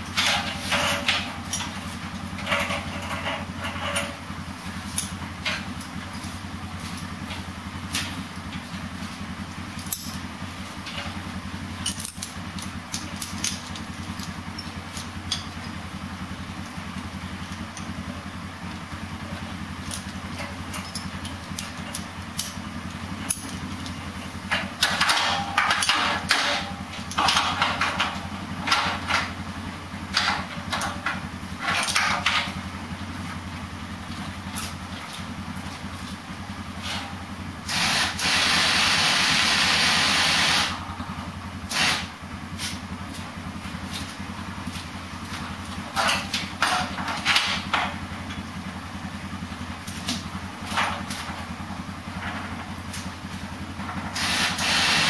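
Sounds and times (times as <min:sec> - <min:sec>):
sawmill engine idling: 0:00.0 - 0:55.0
loud steady hiss: 0:37.7 - 0:40.8, 0:41.7 - 0:42.2, 0:54.2 - 0:55.0
clattering bursts: 0:41.7 - 0:42.1, 0:53.8 - 0:55.0.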